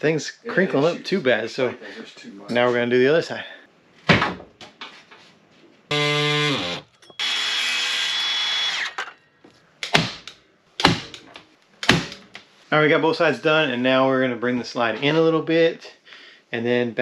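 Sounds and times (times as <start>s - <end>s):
circular saw cutting: 5.9s - 9.2s
sharp knocks: 9.8s - 12.2s.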